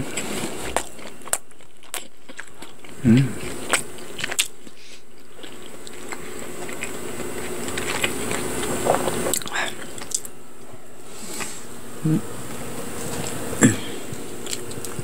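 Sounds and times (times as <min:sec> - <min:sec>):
crunching fried bread: 0:00.0 - 0:11.6, 0:12.4 - 0:15.0
faint steady hum: 0:00.0 - 0:15.0
low throat sound: 0:02.9 - 0:03.7, 0:11.9 - 0:12.5, 0:13.5 - 0:14.2.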